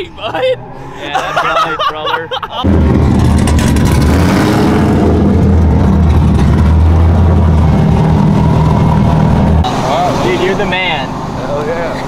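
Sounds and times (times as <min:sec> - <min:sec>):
car engine running: 0:02.6 - 0:12.0.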